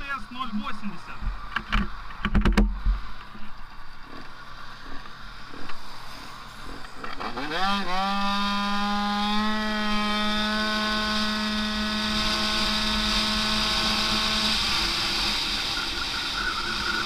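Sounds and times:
scooter engine at full throttle: 4.8 - 17.0.

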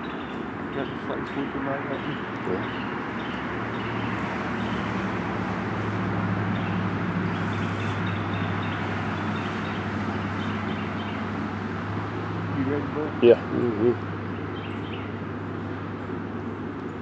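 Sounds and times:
distant engine drone: 0.0 - 17.0.

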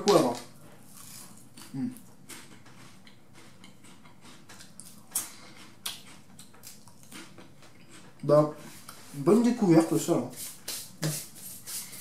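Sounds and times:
crunching and chewing crisps: 0.0 - 8.3.

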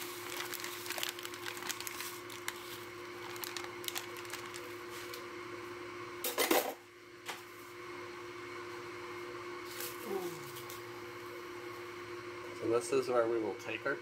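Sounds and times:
plastic pouch crackling: 0.0 - 5.2
faint steady hum: 0.0 - 14.0.

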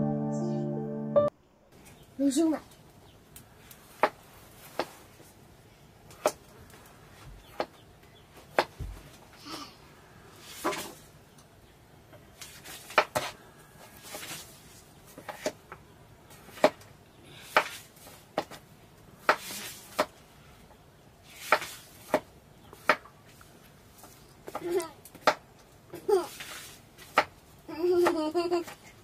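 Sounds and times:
soft scraping and rustling: 10.3 - 11.2, 12.4 - 15.5, 26.2 - 27.2.

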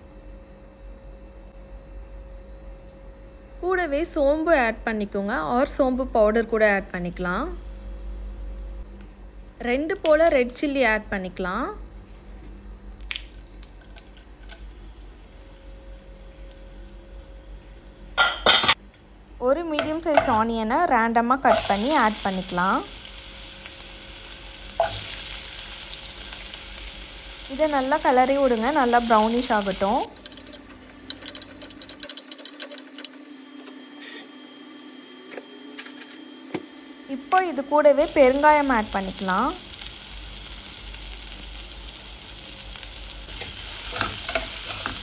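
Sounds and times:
faint steady hum: 0.0 - 45.0
faint crackles and clicks: 12.8 - 18.0
onions sizzling in oil: 21.5 - 35.1, 36.3 - 45.0
metal spoon stirring in pan: 30.1 - 33.1, 43.3 - 45.0.

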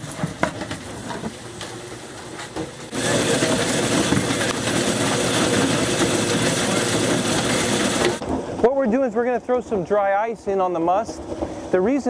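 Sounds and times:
grape crusher machine running: 0.0 - 8.2.

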